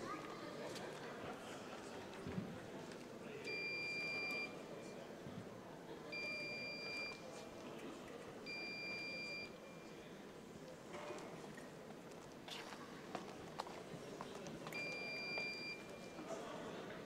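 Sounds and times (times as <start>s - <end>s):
scoring machine beeps: 3.5s - 4.6s, 6.2s - 7.2s, 8.5s - 9.8s, 14.8s - 16.2s.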